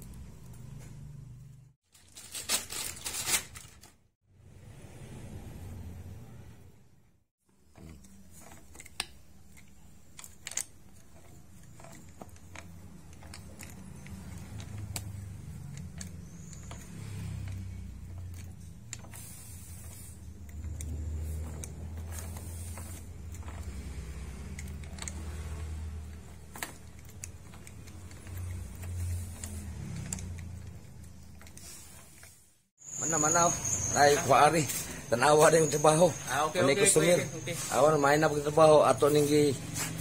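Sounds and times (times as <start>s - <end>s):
metal steering parts clicking: 7.7s - 32.4s.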